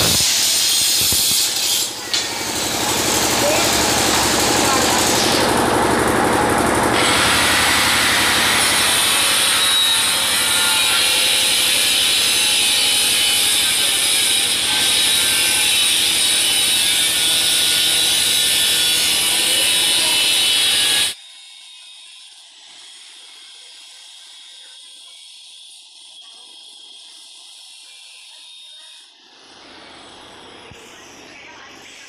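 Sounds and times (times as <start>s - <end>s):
tile cutter grinding ceramic: 0.0s - 5.6s, 6.9s - 21.2s.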